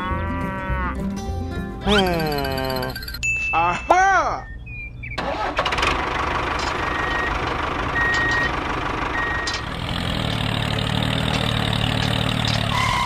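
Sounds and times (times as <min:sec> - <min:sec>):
reversing beeps: 0:03.4 - 0:05.2, 0:06.8 - 0:07.4, 0:09.2 - 0:09.6
vehicle engine running: 0:05.2 - 0:13.0.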